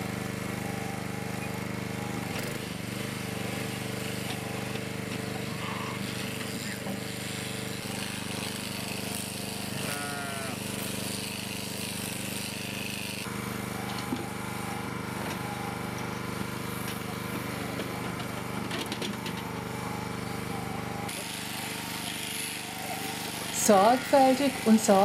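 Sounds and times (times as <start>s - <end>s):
electric sheep shears running: 0.0s - 25.0s
sheep bleating: 9.7s - 10.7s.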